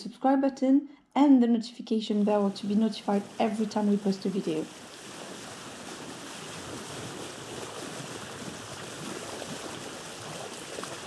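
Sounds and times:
sea water rushing: 2.2 - 11.0.

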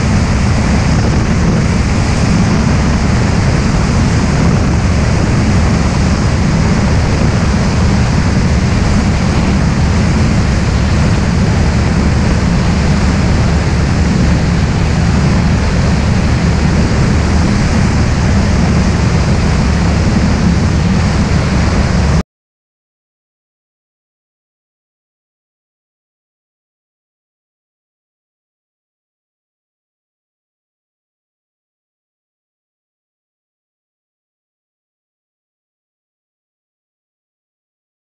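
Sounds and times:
light aircraft engine drone: 0.0 - 22.2
wind rushing over microphone: 0.0 - 22.2.

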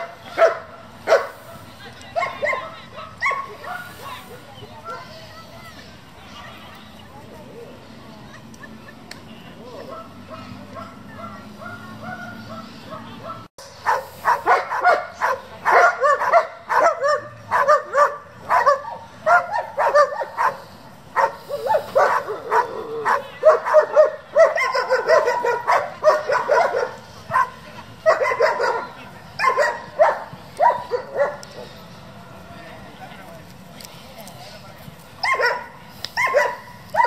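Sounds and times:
dog barking high-pitched: 0.0 - 1.3, 9.9 - 20.6, 21.2 - 28.8, 29.4 - 31.4, 35.2 - 37.0.

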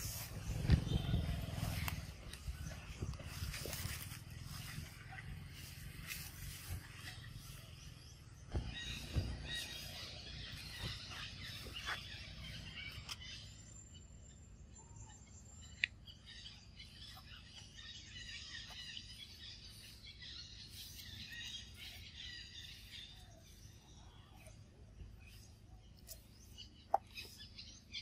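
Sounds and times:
wind rumble on microphone: 0.0 - 7.1
small birds chirping: 0.0 - 28.0.

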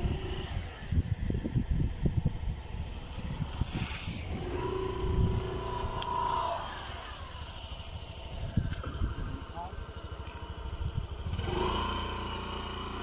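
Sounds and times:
wind on microphone: 0.0 - 9.7
motor vehicle running: 0.0 - 13.0.

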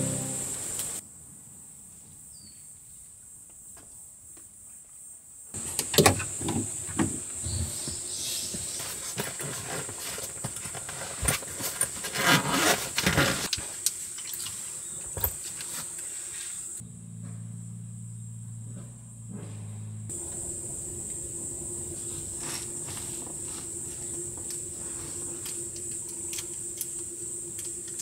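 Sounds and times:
high insect drone: 0.0 - 1.0, 12.6 - 28.0.

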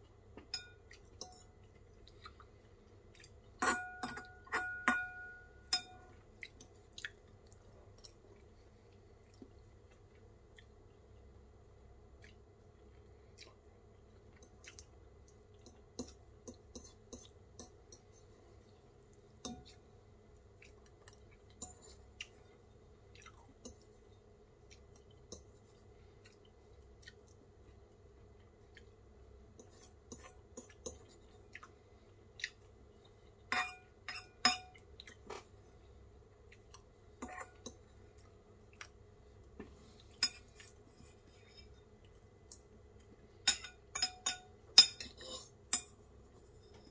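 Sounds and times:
quiet chewing: 0.0 - 3.6, 6.1 - 11.4, 12.1 - 33.5, 34.7 - 43.4
fork clinking on ceramic bowl: 0.4 - 1.5, 3.6 - 6.2, 33.5 - 34.8, 43.4 - 45.9.

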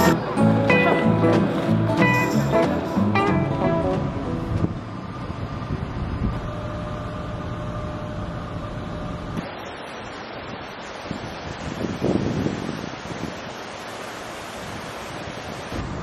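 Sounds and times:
water noise: 0.0 - 16.0
wind buffeting microphone: 4.0 - 7.5, 11.0 - 13.6.

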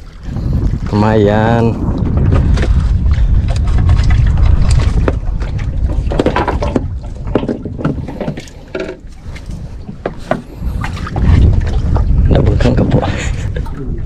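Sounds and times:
water splashing against boat: 0.0 - 14.0
wind rumble on microphone: 0.0 - 14.0
knocks and clatter: 3.9 - 9.0.

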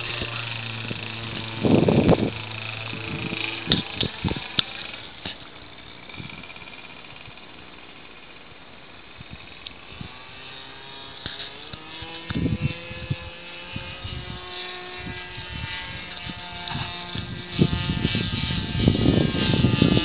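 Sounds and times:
low rumbling bursts: 0.0 - 20.0
model airplane motor droning: 0.0 - 20.0.

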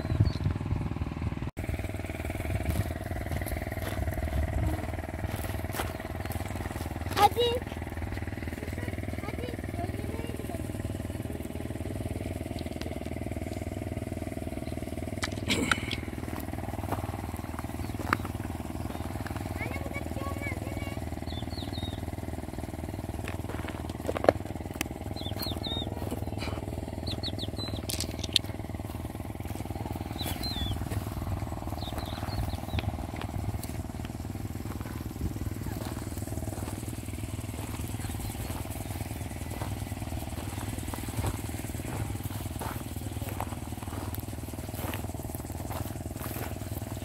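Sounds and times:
bird chirps: 0.0 - 0.6, 17.4 - 19.4, 21.2 - 22.2, 25.0 - 28.6, 29.7 - 33.2
engine humming: 0.0 - 47.0
footsteps on gravel: 1.8 - 13.8, 15.1 - 21.0, 21.6 - 47.0
sharp clicks: 27.1 - 28.6.

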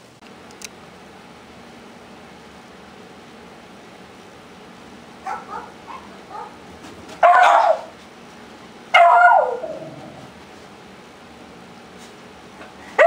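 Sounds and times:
dog barking loudly: 5.2 - 6.6, 7.2 - 8.0, 8.9 - 9.8
small dog yipping: 5.3 - 6.6, 7.2 - 7.9, 9.0 - 9.8.

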